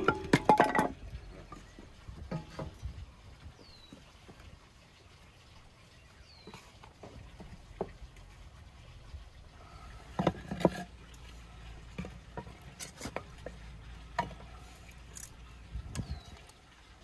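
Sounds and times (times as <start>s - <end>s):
firewood logs knocking together: 0.0s - 2.9s.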